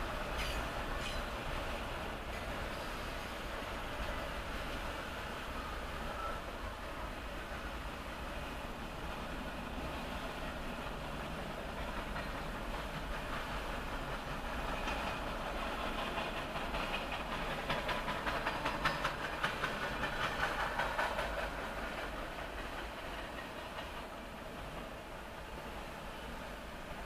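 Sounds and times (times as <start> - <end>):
freight train rumbling past: 0.0 - 27.0
wheel clacks over rail joints: 0.3 - 1.5, 11.2 - 24.1.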